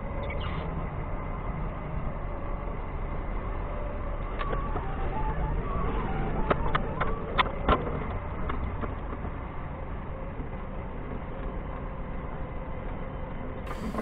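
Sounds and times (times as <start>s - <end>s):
forklift engine running: 13.7s - 14.0s.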